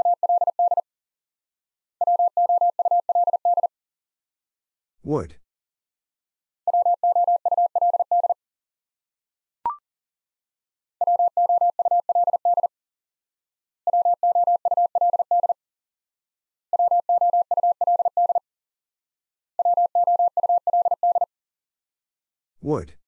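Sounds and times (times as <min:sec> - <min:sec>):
morse code sine tone: 0:00.0 - 0:00.8, 0:02.0 - 0:03.7, 0:06.7 - 0:08.4, 0:11.0 - 0:12.7, 0:13.9 - 0:15.6, 0:16.8 - 0:18.4, 0:19.6 - 0:21.3.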